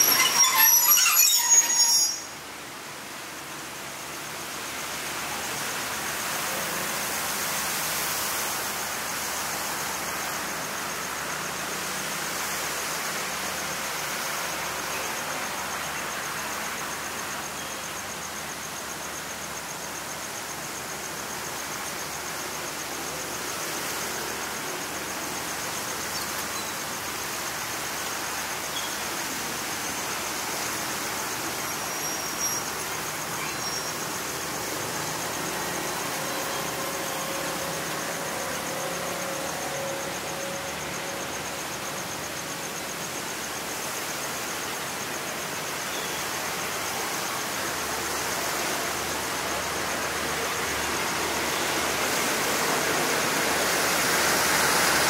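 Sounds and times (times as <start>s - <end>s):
faint high whine: 0.0s - 4.6s
rain hissing: 0.0s - 55.0s.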